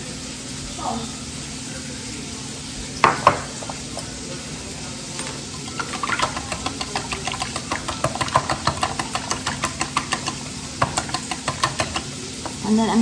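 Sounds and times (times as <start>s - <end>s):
whisk clicking against glass bowl: 5.2s - 12.6s.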